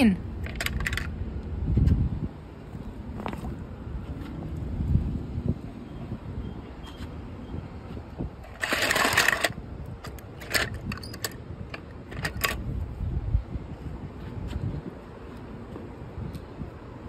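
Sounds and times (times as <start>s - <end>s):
toy cars clattering in a bowl: 8.5s - 9.6s.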